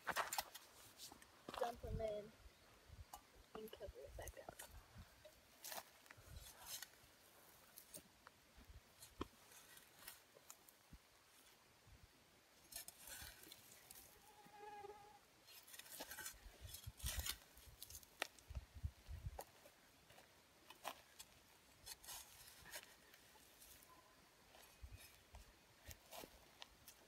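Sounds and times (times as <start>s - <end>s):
shovel scraping stony ground: 0.0s - 1.8s, 9.0s - 10.6s, 12.7s - 14.2s, 15.4s - 18.4s, 20.7s - 23.9s.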